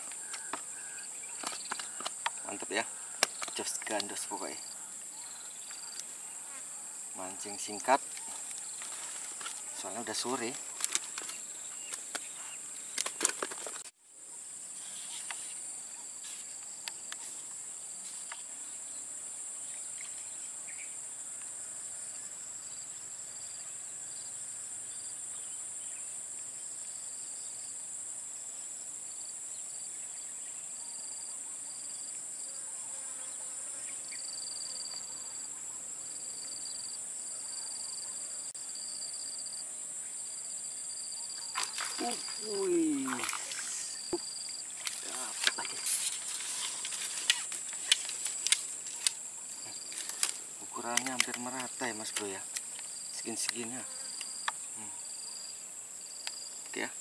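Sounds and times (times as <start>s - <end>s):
high-pitched insect buzz: 0.0s - 13.3s, 14.6s - 57.0s
insect calling in short pulses: 0.0s - 13.3s, 40.9s - 57.0s.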